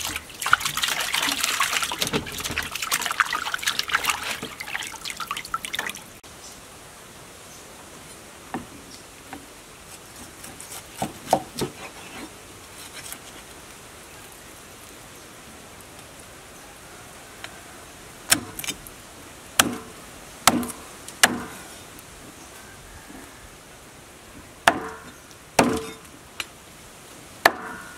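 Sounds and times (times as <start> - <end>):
cleaver chopping on wooden block: 19.6 - 19.9, 20.5 - 21.6, 24.7 - 26.0, 27.4 - 27.9.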